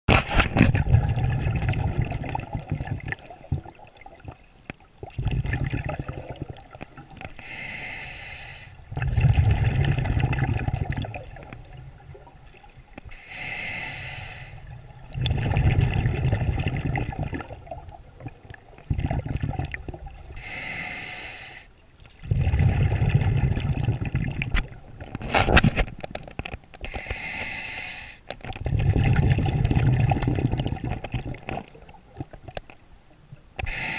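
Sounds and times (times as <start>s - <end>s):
exhaled bubbles rushing: 0.6s - 7.2s, 8.8s - 12.8s, 14.6s - 20.4s, 22.2s - 25.1s, 28.4s - 32.4s
diver inhaling through regulator: 7.4s - 8.8s, 13.1s - 14.7s, 20.4s - 21.7s, 26.8s - 28.2s, 33.6s - 33.9s.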